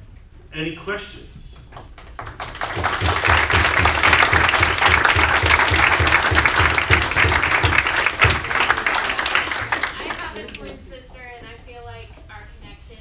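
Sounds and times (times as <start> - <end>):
audience applauding: 1.8 - 10.8.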